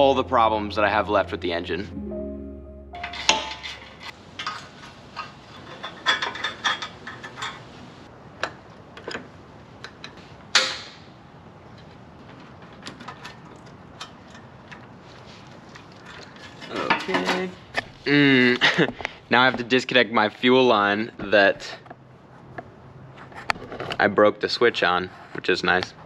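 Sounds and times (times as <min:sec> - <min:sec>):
metallic clank: 0:03.0 - 0:04.1.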